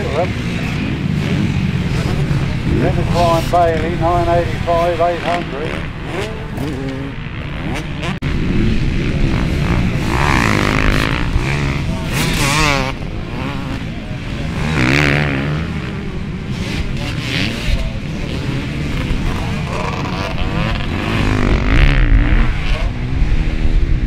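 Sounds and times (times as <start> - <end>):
motocross bike engines revving: 0.0 - 24.0.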